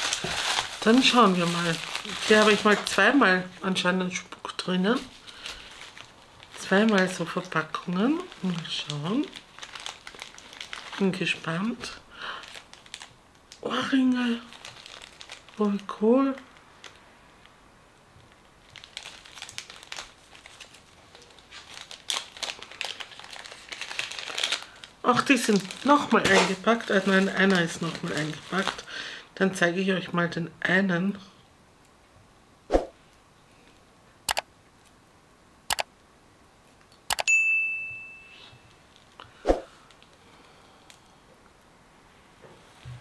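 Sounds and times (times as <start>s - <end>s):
packaging crinkling and rustling: 0.0s - 3.8s, 4.6s - 17.5s, 18.2s - 29.0s
bright bell ding: 37.3s - 38.7s.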